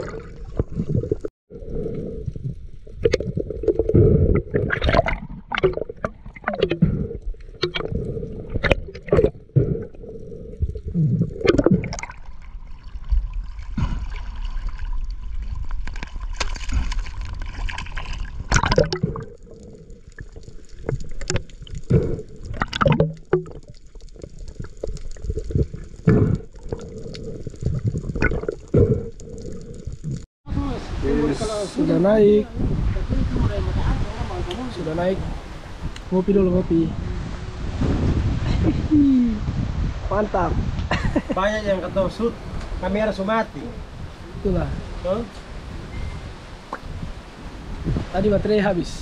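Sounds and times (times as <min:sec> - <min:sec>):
water sloshing and gurgling: 0:00.0 - 0:40.8
knocks and splashes: 0:03.0 - 0:07.0, 0:11.4 - 0:19.4.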